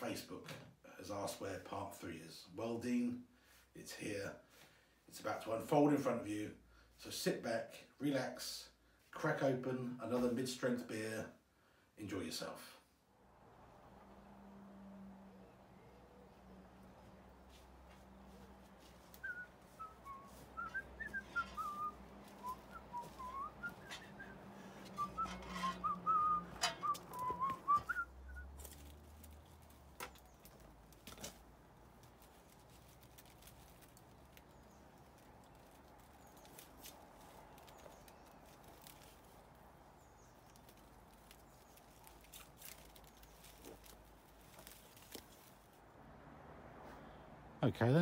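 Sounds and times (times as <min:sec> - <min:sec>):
person whistling: 0:19.2 - 0:28.5.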